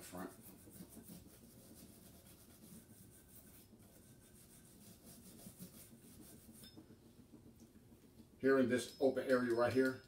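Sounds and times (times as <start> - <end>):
brush scrubbing metal: 0.0 - 6.8.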